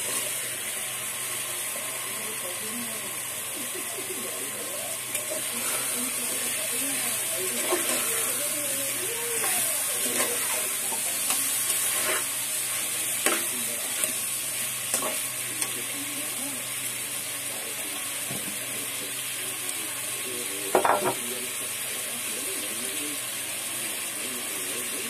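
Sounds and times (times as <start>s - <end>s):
food sizzling in a pot: 0.0s - 25.0s.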